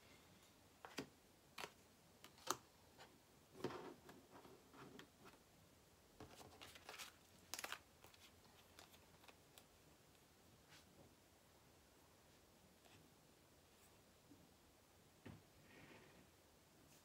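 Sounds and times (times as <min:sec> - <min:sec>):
cards rustling on a table: 0:06.2 - 0:09.7.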